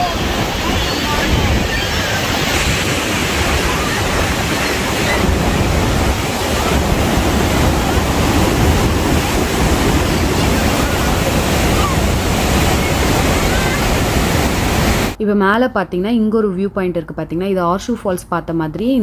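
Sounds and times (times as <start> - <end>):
waterfall roaring onto rocks: 0.0 - 15.2
wind buffeting microphone: 0.0 - 15.2.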